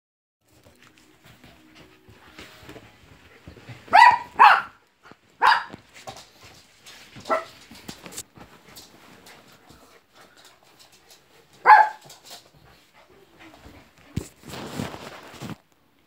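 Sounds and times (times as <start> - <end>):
dog barking: 3.9 - 4.8, 5.4 - 5.8, 11.6 - 12.0.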